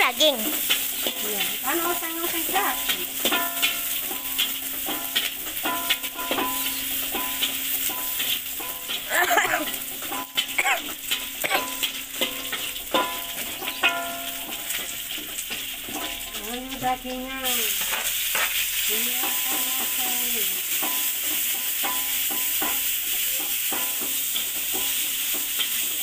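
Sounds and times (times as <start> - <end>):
oil sizzling: 0.0 - 26.0
metal spatula scraping a wok: 0.3 - 20.0, 20.7 - 26.0.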